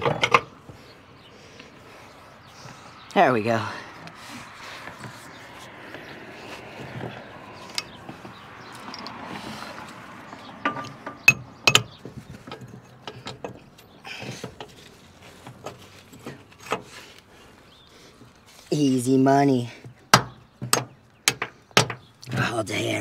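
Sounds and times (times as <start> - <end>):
metal tools clinking: 8.7 - 9.2, 10.6 - 17.0.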